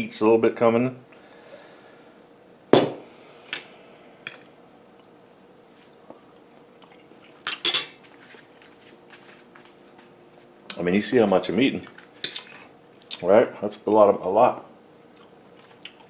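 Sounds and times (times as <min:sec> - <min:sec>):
bottle set down on countertop: 0:02.7 - 0:03.0.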